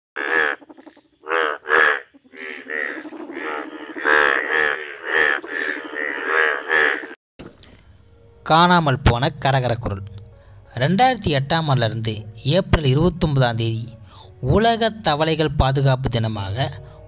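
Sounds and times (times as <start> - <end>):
bullfrogs croaking: 0.2 - 7.2.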